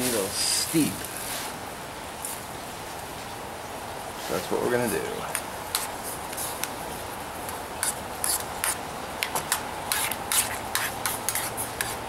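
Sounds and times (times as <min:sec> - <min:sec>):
metal spoon scraping steel cup: 0:09.9 - 0:12.0.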